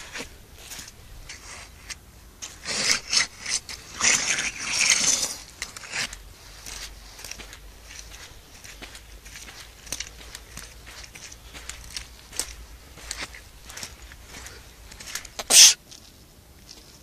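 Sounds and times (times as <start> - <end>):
footsteps in wet sand: 0.0 - 17.0
shoes scuffing in wet sand: 4.0 - 16.1.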